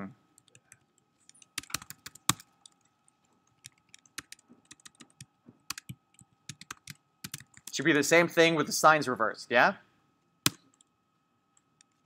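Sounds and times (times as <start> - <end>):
computer keyboard typing: 0.4 - 7.8.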